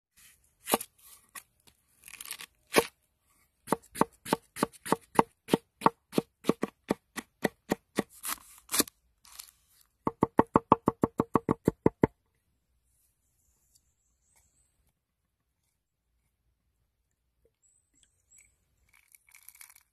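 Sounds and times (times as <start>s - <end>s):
knife chopping on wooden board: 3.7s - 8.1s.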